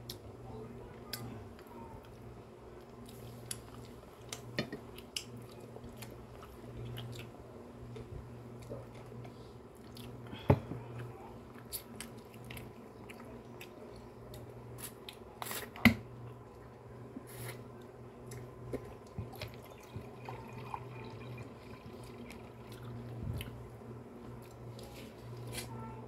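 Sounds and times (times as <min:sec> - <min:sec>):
low steady hum: 0:00.0 - 0:26.0
chewing and mouth sounds: 0:02.8 - 0:16.6, 0:17.4 - 0:23.6.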